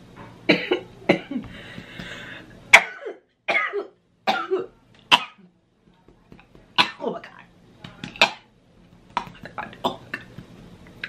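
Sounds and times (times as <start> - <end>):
woman coughing: 0.5 - 1.4, 2.7 - 5.4, 6.8 - 7.2.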